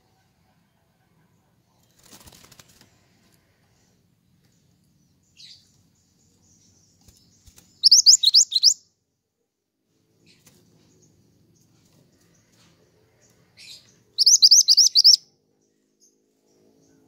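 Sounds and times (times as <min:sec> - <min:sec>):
bird wings fluttering: 0:01.8 - 0:03.0, 0:07.0 - 0:07.8
songbird chirping: 0:03.0 - 0:09.0, 0:10.2 - 0:17.0.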